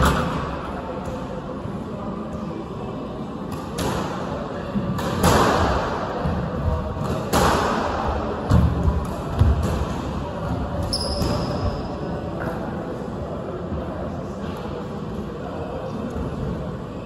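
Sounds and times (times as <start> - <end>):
shoe squeak: 10.8 - 11.9.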